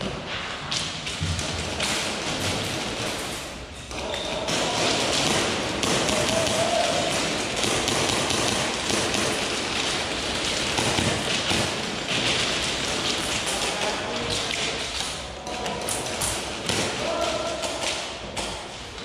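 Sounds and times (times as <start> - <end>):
pellets ticking against walls: 0.7 - 18.8
airsoft gunfire: 1.3 - 15.1.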